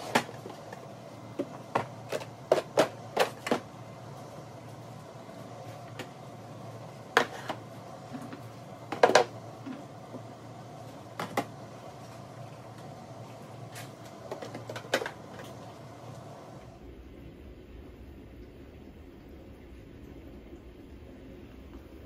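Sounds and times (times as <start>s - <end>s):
steady low hum: 0.0s - 22.0s
plastic containers clacking: 1.4s - 3.7s, 7.2s - 9.8s, 14.2s - 15.6s.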